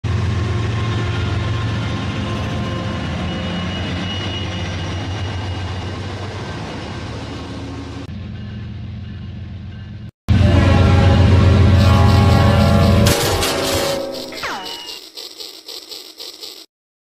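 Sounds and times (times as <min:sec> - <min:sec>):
train engine rumble: 0:00.0 - 0:15.3.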